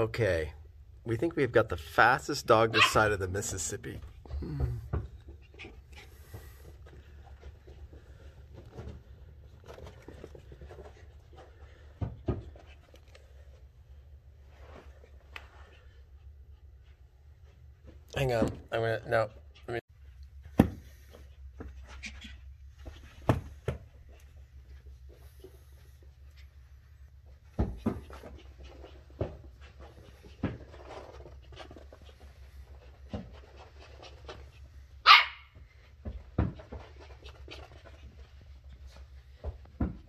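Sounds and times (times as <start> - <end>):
puppy barking: 2.7 - 3.1, 35.0 - 35.6.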